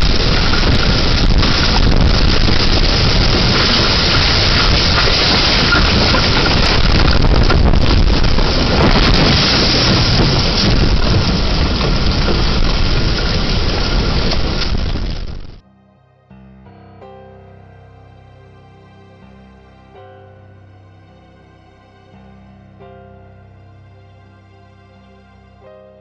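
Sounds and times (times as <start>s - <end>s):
driving rain: 0.0s - 15.6s
roaring wind: 0.0s - 15.6s.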